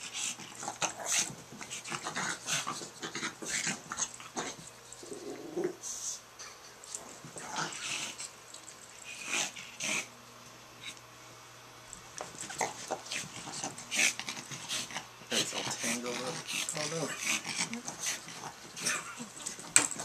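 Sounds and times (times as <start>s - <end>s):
dog growling: 0.2s - 5.8s, 7.4s - 8.3s, 9.0s - 10.1s, 12.4s - 20.0s.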